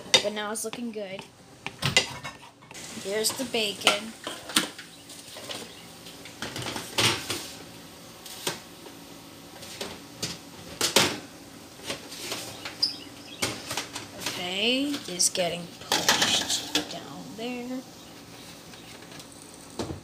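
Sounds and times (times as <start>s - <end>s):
foil pans clattering on metal rack: 15.9s - 16.9s.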